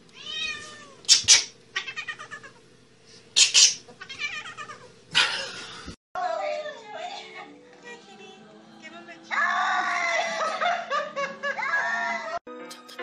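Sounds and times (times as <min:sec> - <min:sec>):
cat yowling: 0:00.2 - 0:02.6, 0:03.4 - 0:04.9, 0:09.3 - 0:10.4.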